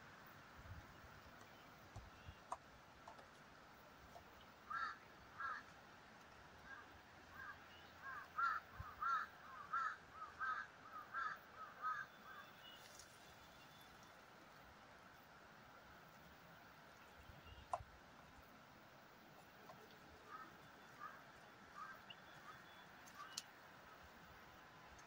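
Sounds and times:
bird cawing: 0:04.7 - 0:05.8, 0:06.6 - 0:12.9, 0:19.7 - 0:23.5.

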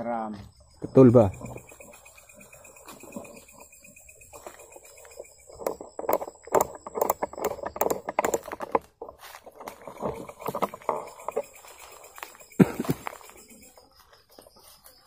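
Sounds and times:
footsteps through rustling undergrowth: 0:09.1 - 0:10.4, 0:11.4 - 0:15.0.

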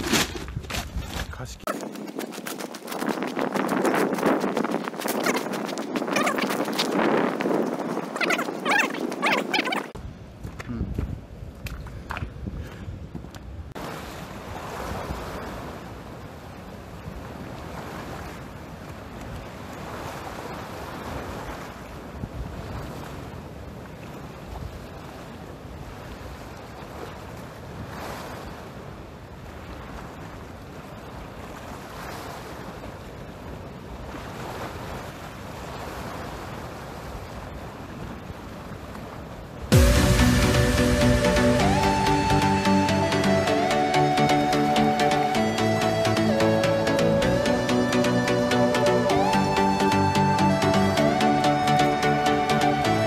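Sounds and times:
surf washing against rocks: 0:00.0 - 0:10.0
wind buffeting microphone: 0:00.0 - 0:13.8
wind rumbling on microphone: 0:00.0 - 0:43.1.

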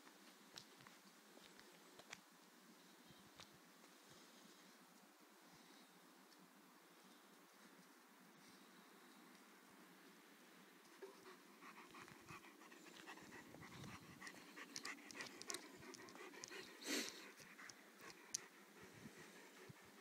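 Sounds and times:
dog panting: 0:11.0 - 0:20.0.

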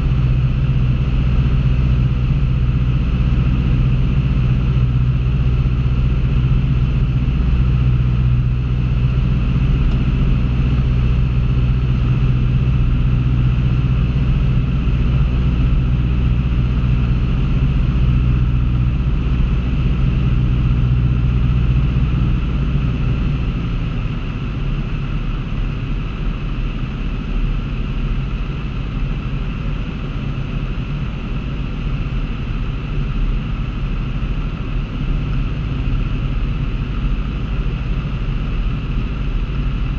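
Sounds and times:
airplane engine and propeller droning: 0:00.0 - 0:39.9.

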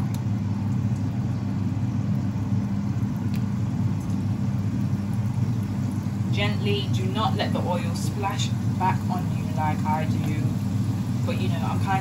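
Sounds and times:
dumplings sizzling in oil: 0:00.0 - 0:12.0
steady low hum: 0:00.0 - 0:12.0.

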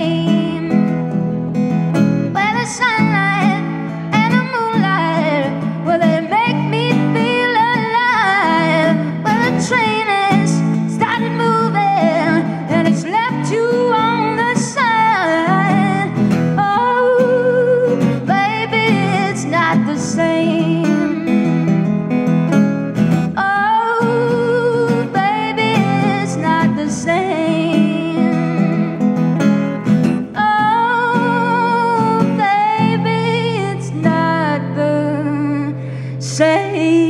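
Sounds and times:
woman singing blues: 0:00.0 - 0:21.9, 0:23.3 - 0:37.0
strummed acoustic guitar: 0:00.0 - 0:37.0.

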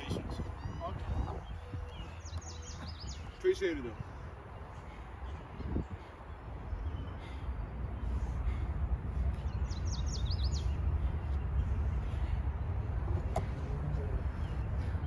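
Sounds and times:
steady low rumble: 0:00.0 - 0:15.0
small bird chirping: 0:09.4 - 0:11.7.

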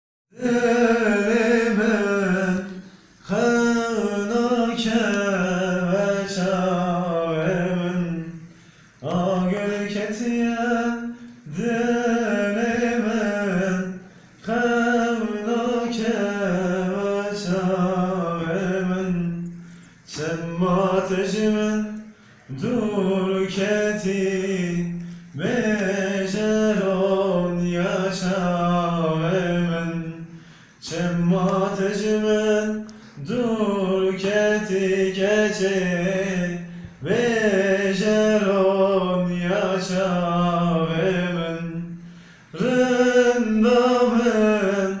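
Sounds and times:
man singing unaccompanied: 0:00.3 - 0:45.0
man breathing: 0:30.3 - 0:30.8, 0:42.0 - 0:42.6.

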